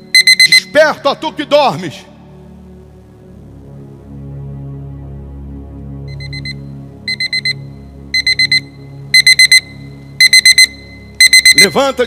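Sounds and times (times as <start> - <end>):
alarm clock beeping: 0.0 - 0.8, 6.1 - 12.0
soft background music: 0.0 - 12.0.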